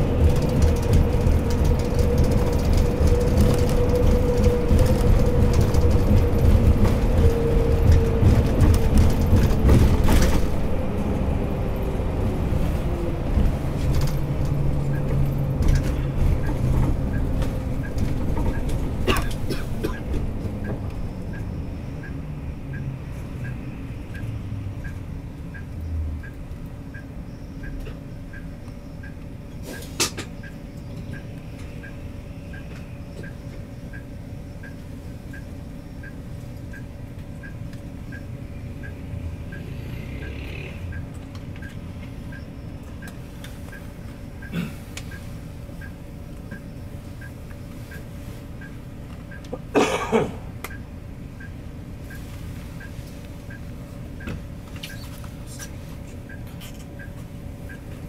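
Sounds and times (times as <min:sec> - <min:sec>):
bus diesel engine idling: 0:00.0 - 0:39.6, 0:40.3 - 0:58.0.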